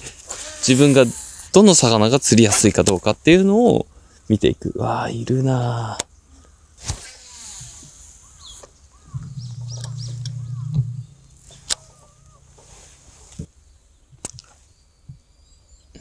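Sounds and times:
birds calling: 6.2s - 13.4s
low steady hum: 9.0s - 13.3s
sharp clicks: 9.2s - 12.0s.

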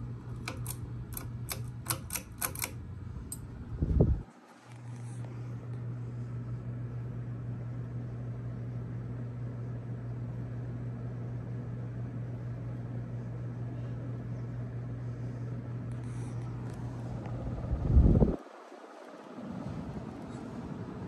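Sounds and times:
ceiling fan motor hum: 0.0s - 21.0s
rush of moving air: 16.8s - 21.0s.

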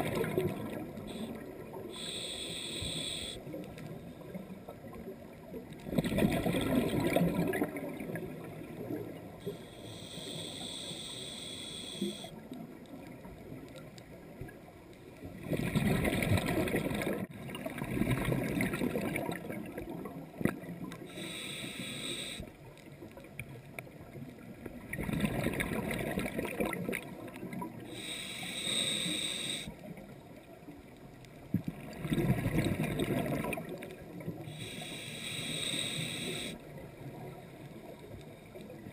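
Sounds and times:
exhaled bubbles burbling: 0.0s - 1.8s, 5.9s - 9.1s, 15.4s - 20.8s, 24.9s - 27.8s, 31.8s - 33.9s
regulator hissing inhale: 1.0s - 4.3s, 9.4s - 12.4s, 21.1s - 22.6s, 27.8s - 29.8s, 34.4s - 36.7s.

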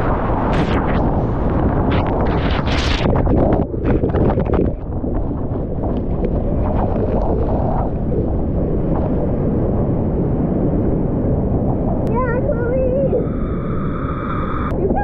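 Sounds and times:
water buffeting microphone: 0.0s - 15.0s
water splashing: 2.0s - 9.3s.

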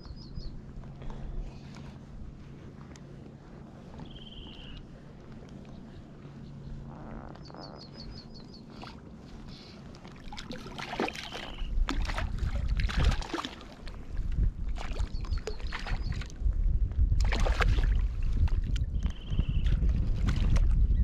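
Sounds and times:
wind rumbling on microphone: 0.0s - 21.0s
bird chirping: 4.0s - 4.8s, 6.4s - 8.9s
water splashing against float tube: 10.0s - 14.0s, 17.2s - 18.8s.

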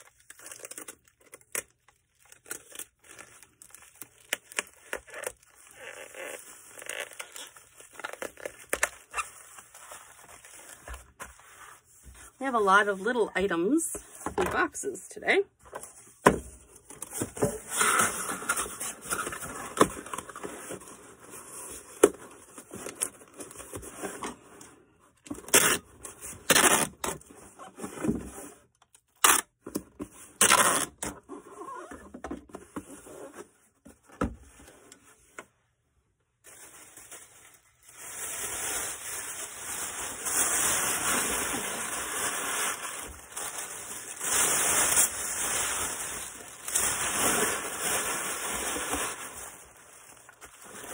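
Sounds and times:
packaging scraping and crackling: 0.0s - 12.0s, 36.4s - 50.9s.

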